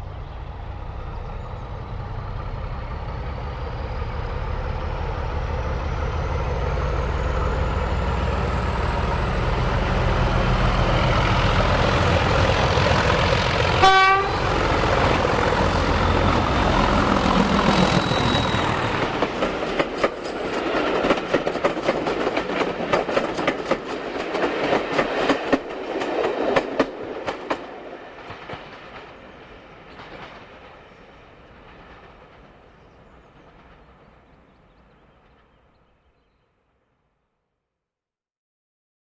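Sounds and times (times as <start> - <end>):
diesel locomotive engine: 0.0 - 36.2
train wheels clicking over rail joints: 14.5 - 34.0.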